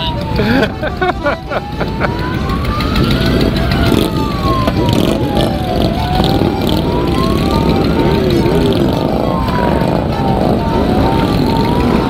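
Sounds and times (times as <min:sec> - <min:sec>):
motorcycle engines rumbling: 0:00.0 - 0:12.0
siren wailing: 0:00.0 - 0:12.0.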